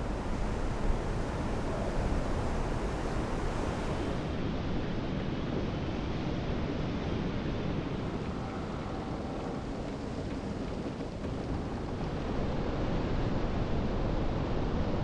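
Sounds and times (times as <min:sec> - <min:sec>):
wind on microphone: 0:00.0 - 0:04.9.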